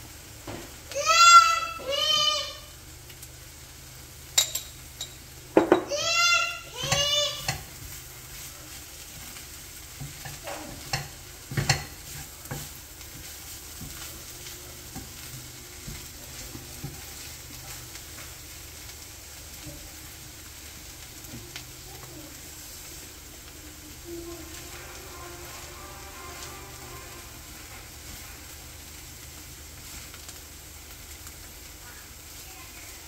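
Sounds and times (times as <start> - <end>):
beans sizzling in a pan: 0.0 - 33.0
spatula knocking on a pan: 5.6 - 6.2, 6.8 - 7.8, 10.0 - 14.1
wooden spatula scraping a pan: 6.6 - 18.8, 20.8 - 30.2.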